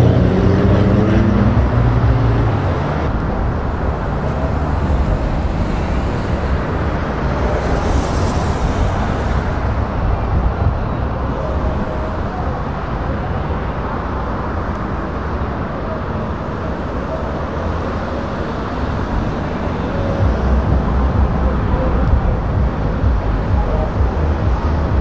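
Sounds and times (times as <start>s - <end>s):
road traffic rumbling: 0.0s - 25.0s
truck diesel engines rumbling: 0.0s - 25.0s
brief hiss: 7.6s - 9.6s.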